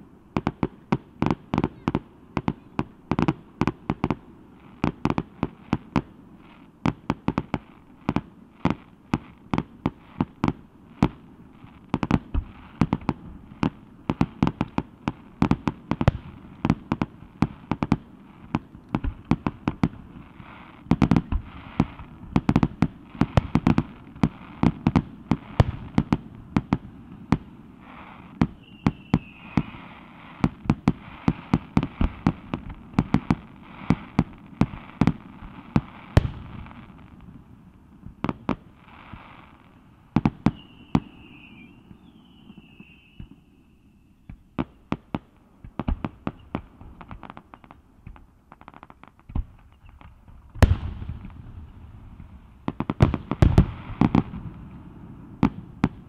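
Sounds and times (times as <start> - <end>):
fireworks banging: 11.9 - 37.2
falling firework whistle: 27.8 - 30.5, 40.2 - 45.0.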